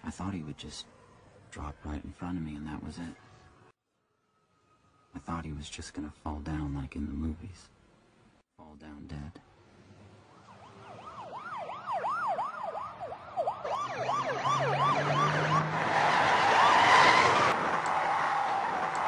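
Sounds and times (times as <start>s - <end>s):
vehicle rushing past: 9.8s - 19.0s
emergency sirens yelping: 10.3s - 19.0s.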